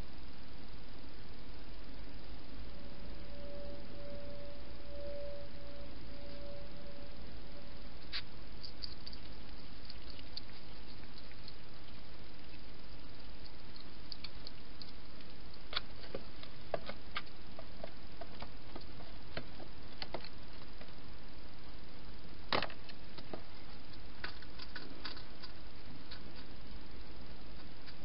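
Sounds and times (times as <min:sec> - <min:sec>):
steady hiss: 0:00.0 - 0:28.0
hedgehog crunching food: 0:08.0 - 0:21.0, 0:23.2 - 0:26.6.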